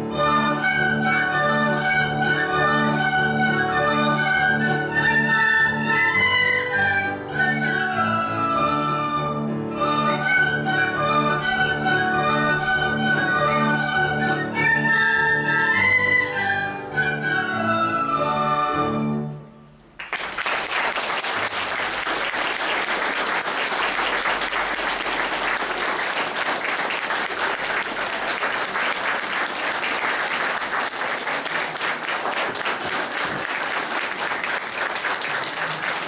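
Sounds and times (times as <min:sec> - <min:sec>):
recorder ensemble playing: 0:00.0 - 0:19.5
audience applauding: 0:19.9 - 0:36.0.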